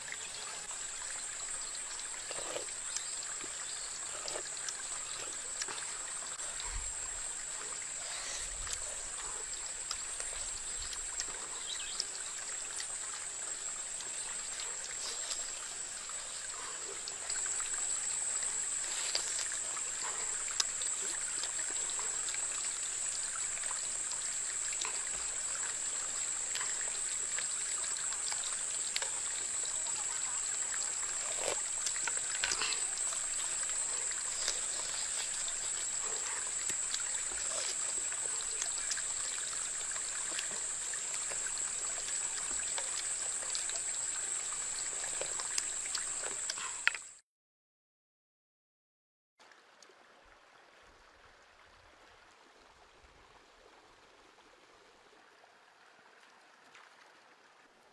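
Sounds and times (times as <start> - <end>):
steady high-pitched hiss: 0.0 - 47.2
eating clicks and slurps: 2.2 - 3.5, 4.1 - 5.9, 31.0 - 39.2.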